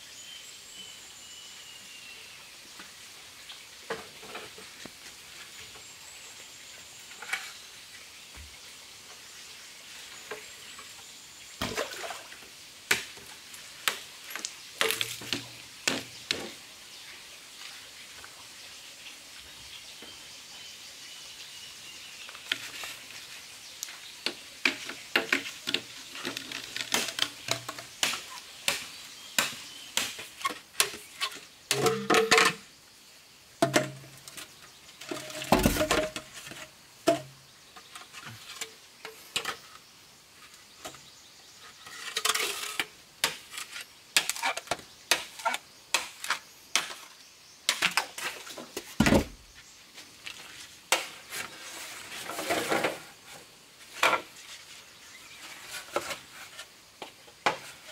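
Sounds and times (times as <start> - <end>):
machete chopping bamboo: 26.9 - 31.0.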